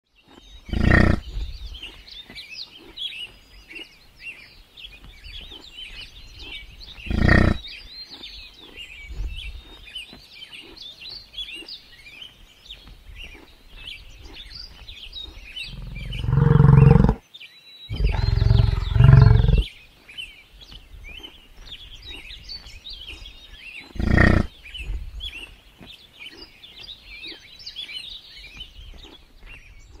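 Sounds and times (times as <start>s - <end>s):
birds chirping: 0.0s - 30.0s
buffalo deep bass calls: 0.7s - 1.4s, 6.4s - 7.6s, 15.3s - 17.2s, 17.9s - 19.7s, 24.0s - 24.9s.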